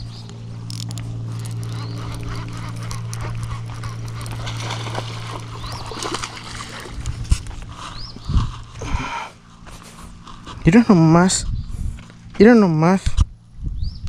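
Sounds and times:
fishing reel cranking: 0.7 - 4.4
fish splashing in water: 3.6 - 7.4.

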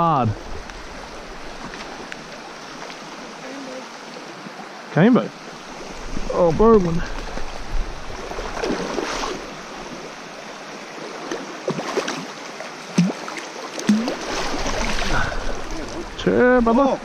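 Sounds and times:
river current rushing: 0.0 - 17.0
fish splashing at surface: 13.0 - 16.0.

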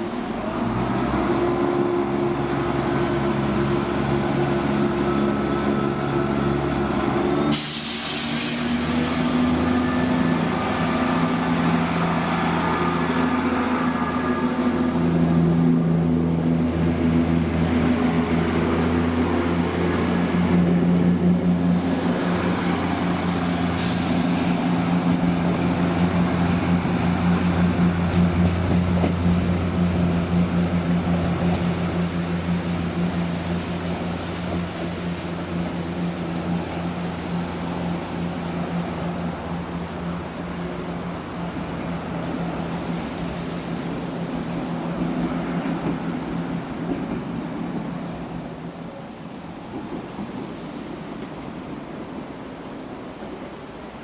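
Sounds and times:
diesel train engine running: 0.0 - 54.0
sharp hiss of air: 7.5 - 9.0, 23.6 - 24.8.

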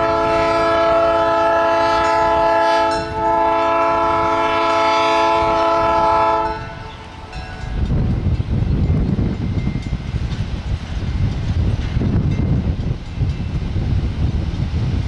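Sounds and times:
locomotive air horn blasts: 0.0 - 7.0.

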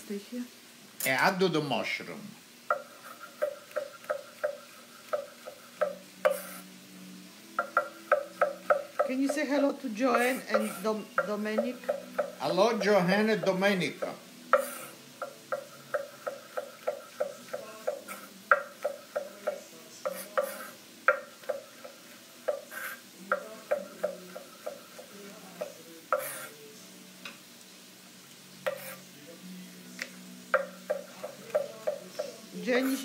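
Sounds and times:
knife tapping cutting board: 2.7 - 6.5, 7.5 - 9.5, 10.1 - 26.5, 28.7 - 29.0, 30.0 - 33.0.

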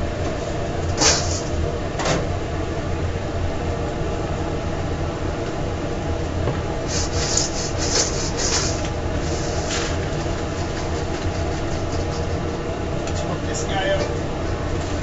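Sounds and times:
hum of kitchen equipment: 0.0 - 15.0
short scraping strokes: 6.9 - 10.0.

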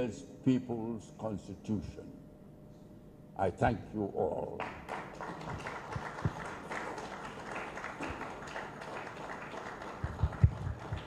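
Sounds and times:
audience applauding: 4.6 - 11.0.

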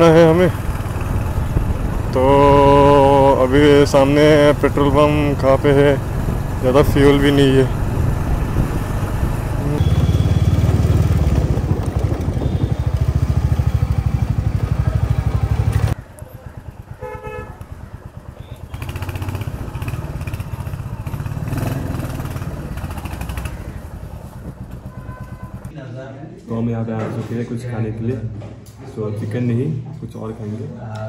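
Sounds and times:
motorcycle engine running: 0.0 - 25.7
vehicle horn toot: 9.8 - 10.8, 12.1 - 13.3, 17.0 - 17.6, 24.8 - 25.7.

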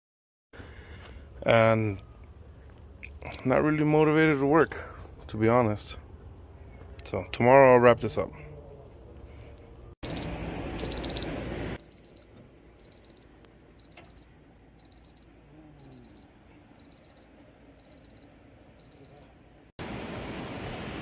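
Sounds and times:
thermometer alarm beeping: 10.0 - 19.3.

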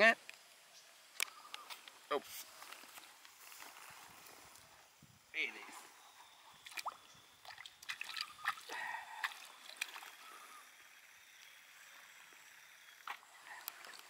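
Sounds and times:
faint steady hiss: 0.0 - 14.0
pond water splashing: 5.4 - 14.0
water dripping: 6.5 - 10.4.

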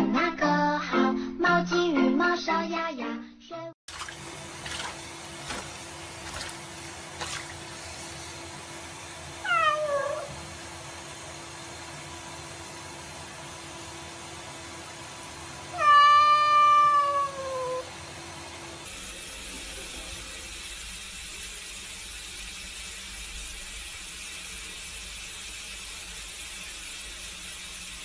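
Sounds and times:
cat meowing: 9.4 - 10.4, 15.7 - 17.9.

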